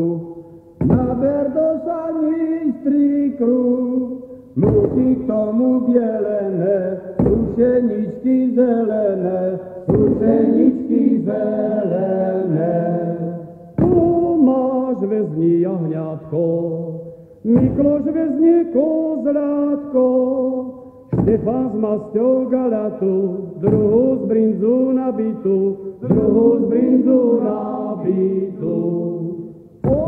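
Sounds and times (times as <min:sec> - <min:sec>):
men singing a folk chant: 0:00.9 - 0:30.0.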